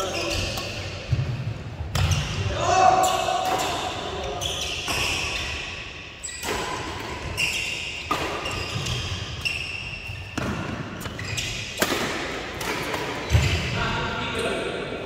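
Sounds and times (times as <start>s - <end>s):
shoes squeaking on court: 0.0s - 1.0s, 6.2s - 11.9s
racket hitting shuttlecock: 6.4s - 9.3s, 10.2s - 13.6s.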